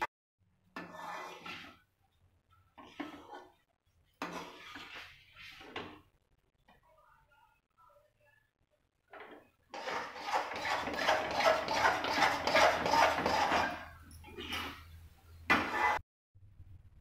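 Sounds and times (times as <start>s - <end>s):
metal spoon scraping metal pan: 0.8s - 1.8s, 2.8s - 3.6s, 4.2s - 5.8s, 9.8s - 16.0s.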